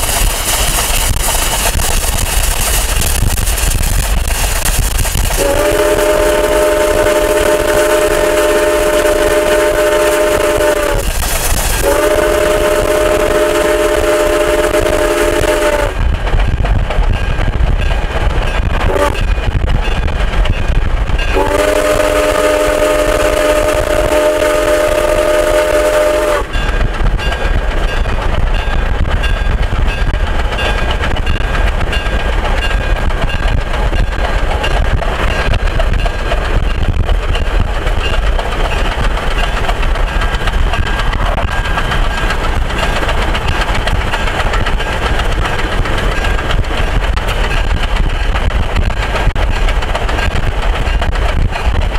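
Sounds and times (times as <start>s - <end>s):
low rumble: 0.0s - 51.9s
steam whistle blasts: 5.4s - 11.1s, 11.8s - 16.0s, 18.9s - 19.2s, 21.4s - 26.6s.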